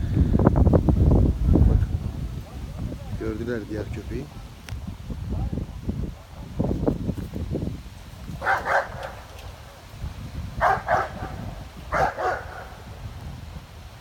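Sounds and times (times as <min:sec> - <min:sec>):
dog barking: 0:08.4 - 0:09.4, 0:10.6 - 0:12.9.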